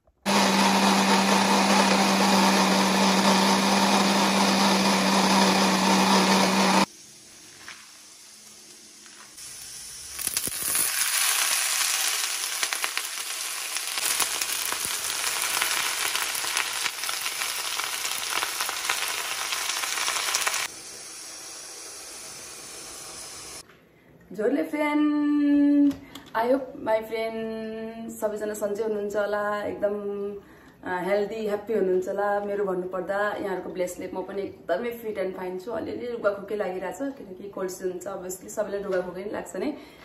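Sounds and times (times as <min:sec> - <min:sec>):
blender grinding: 0:00.1 - 0:06.9, 0:10.2 - 0:23.6
greens sizzling in hot oil: 0:06.8 - 0:23.6.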